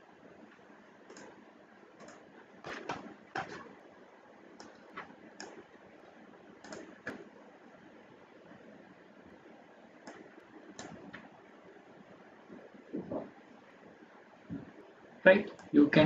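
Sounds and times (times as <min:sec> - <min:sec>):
faint steady hiss: 0:00.0 - 0:16.0
computer mouse clicks: 0:01.0 - 0:01.4, 0:02.0 - 0:03.7, 0:04.6 - 0:07.3, 0:10.0 - 0:11.3.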